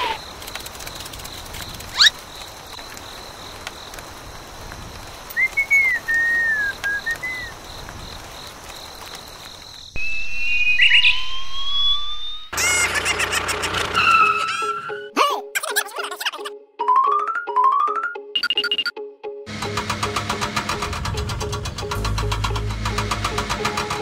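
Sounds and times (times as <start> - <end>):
whistled tune with gliding notes: 5.4 - 7.5, 10.0 - 12.6, 14.0 - 15.2.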